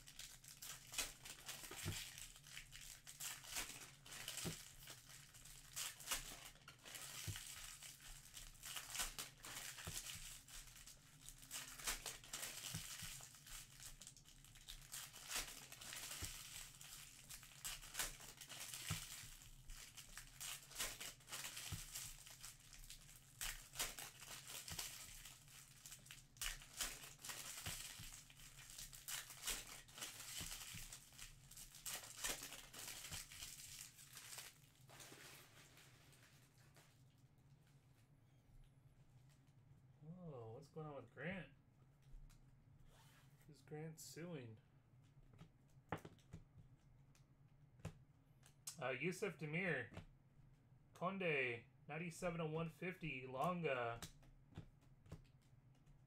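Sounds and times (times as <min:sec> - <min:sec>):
wrappers crinkling and tearing: 0:00.0 - 0:37.0.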